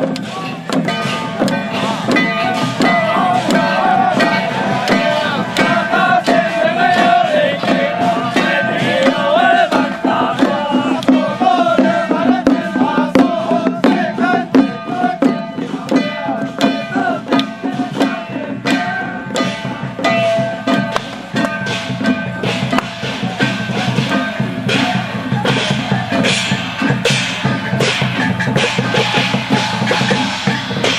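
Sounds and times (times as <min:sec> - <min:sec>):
music with drums and percussion: 0:00.0 - 0:30.9.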